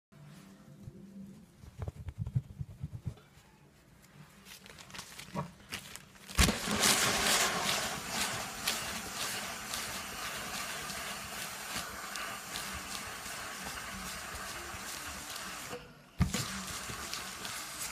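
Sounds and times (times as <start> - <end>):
iron scraping over newspaper: 6.2 - 17.9.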